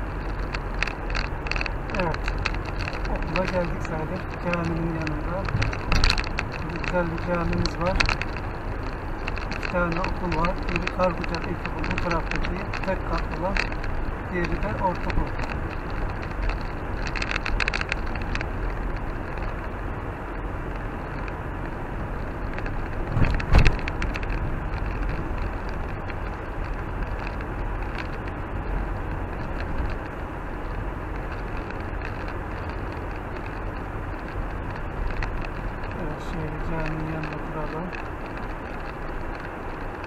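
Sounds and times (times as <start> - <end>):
car engine and tyre noise: 0.0 - 40.0
car thump: 23.1 - 24.0.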